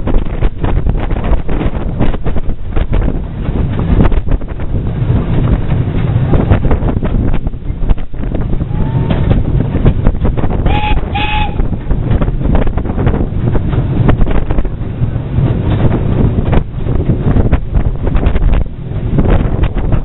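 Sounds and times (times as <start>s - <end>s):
moving train rumble: 0.0s - 20.0s
wind noise on microphone: 0.0s - 20.0s
steam whistle toots: 8.7s - 9.2s, 10.6s - 11.7s.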